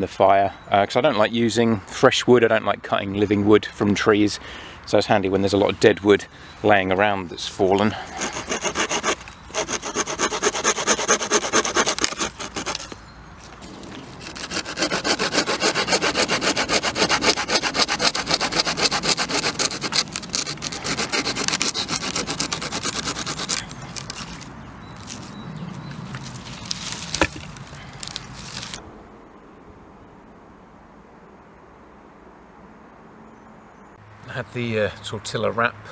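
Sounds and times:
hand saw cutting branch: 8.0 - 13.0, 14.2 - 25.3.

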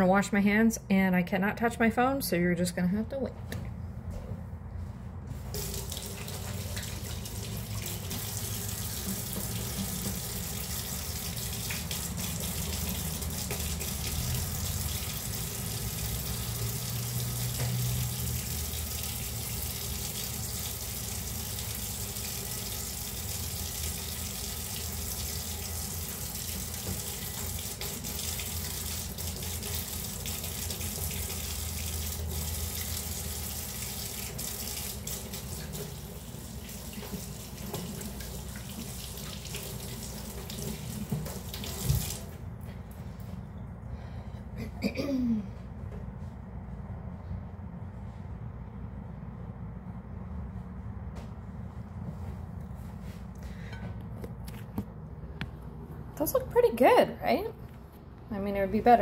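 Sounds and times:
faucet running: 5.5 - 42.4.

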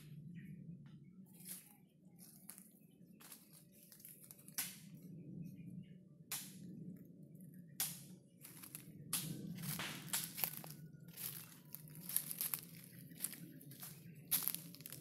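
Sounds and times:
footsteps crunching dry leaves: 1.4 - 4.7, 8.4 - 15.0.

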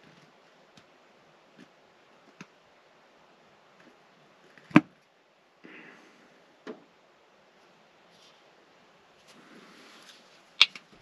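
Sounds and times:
short rustle: 7.6 - 11.0.

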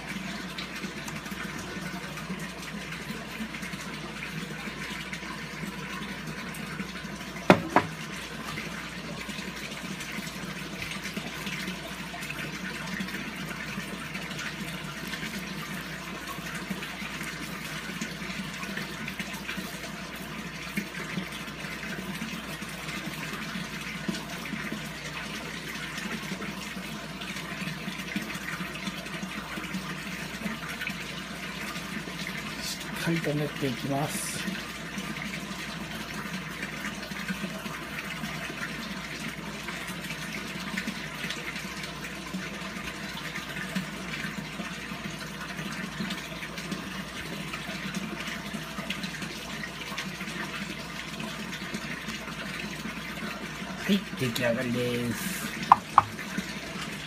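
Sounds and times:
running water: 0.0 - 57.0
sharp knocks: 7.5 - 7.9, 55.7 - 56.2.

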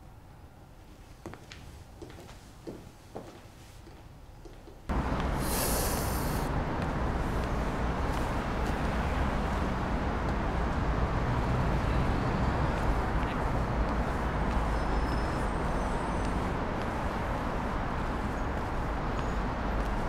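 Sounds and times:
city street traffic rumble: 0.0 - 20.0
brief high hiss: 5.4 - 6.5.

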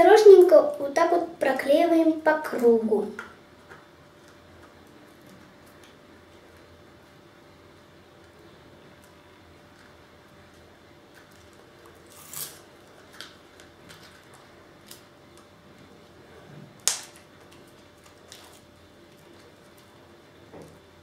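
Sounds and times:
tape rustling: 11.1 - 15.9, 16.8 - 20.0.

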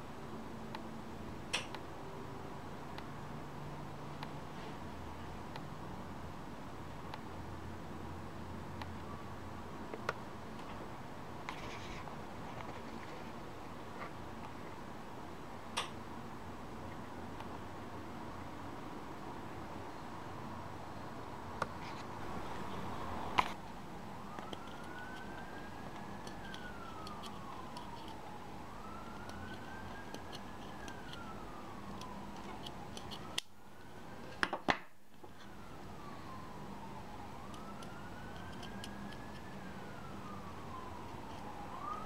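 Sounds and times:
siren wailing: 22.3 - 34.4, 35.3 - 42.0.

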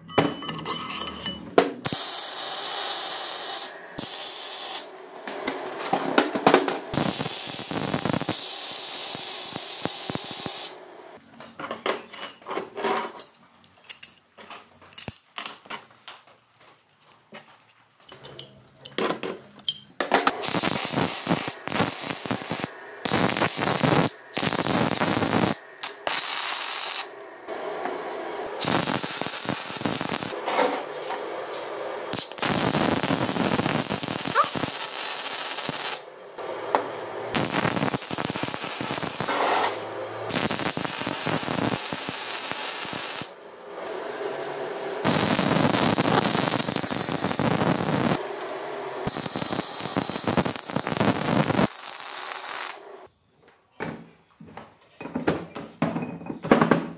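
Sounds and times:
nuts and bolts clinking: 0.0 - 1.8, 11.4 - 20.3
welder arc crackling: 1.8 - 5.8, 6.9 - 10.8, 20.2 - 27.2, 28.6 - 30.4, 32.1 - 36.5, 37.2 - 43.4, 45.0 - 53.1.

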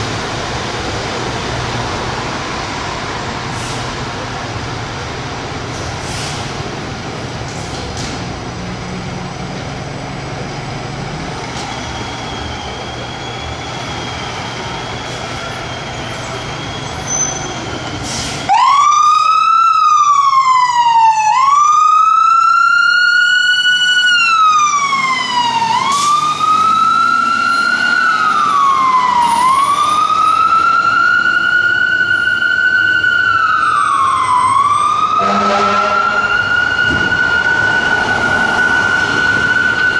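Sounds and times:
fire engine siren wailing: 18.4 - 39.9.

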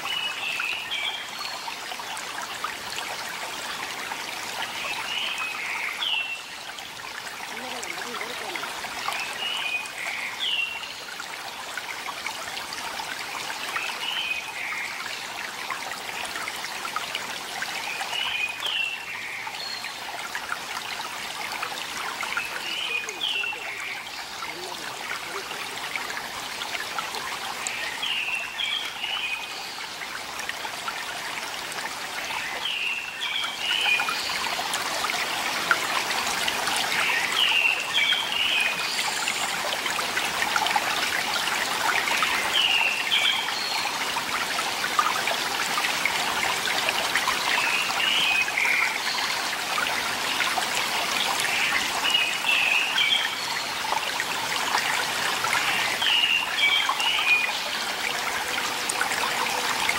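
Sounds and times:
stream splashing over rocks: 0.0 - 59.9.

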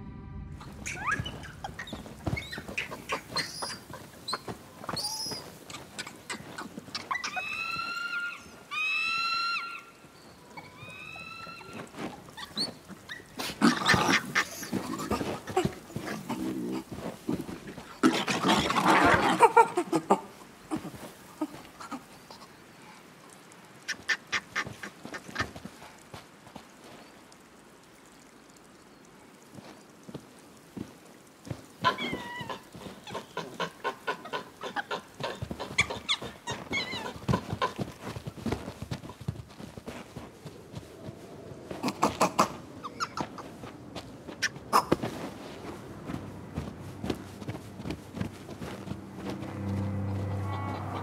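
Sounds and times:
crunching on snow: 0.6 - 8.1, 11.7 - 19.6, 34.3 - 51.0
monkeys squeaky calls: 0.6 - 9.9, 31.8 - 37.8, 41.8 - 43.5
monkeys calling: 0.6 - 22.7, 23.8 - 25.8, 31.6 - 39.2, 41.7 - 45.3.

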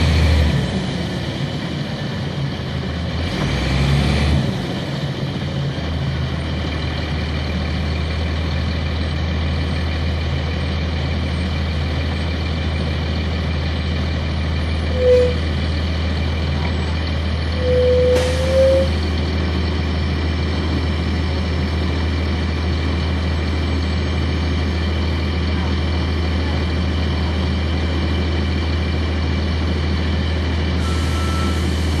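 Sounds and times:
diesel engine idling: 0.0 - 32.0.

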